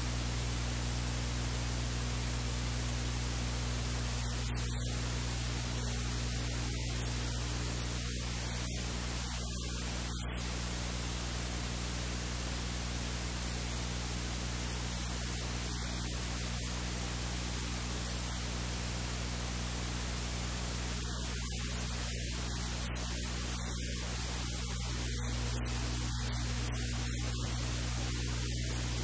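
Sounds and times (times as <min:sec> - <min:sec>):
low electrical hum: 0:00.0 - 0:29.0
static hiss: 0:00.0 - 0:29.0.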